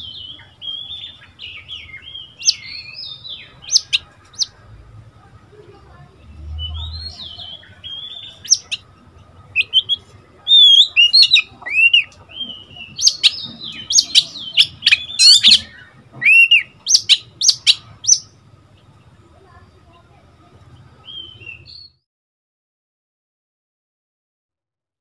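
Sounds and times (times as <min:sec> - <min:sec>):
bird singing whistled notes: 0:00.0 - 0:04.5, 0:09.6 - 0:18.3, 0:21.0 - 0:22.0.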